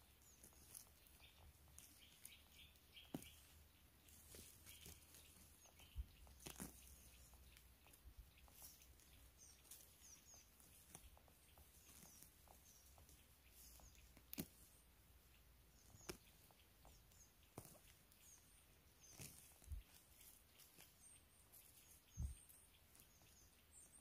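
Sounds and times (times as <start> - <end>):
faint high bird chirps: 0.0 - 24.0
soft sharp clicks: 15.8 - 18.0.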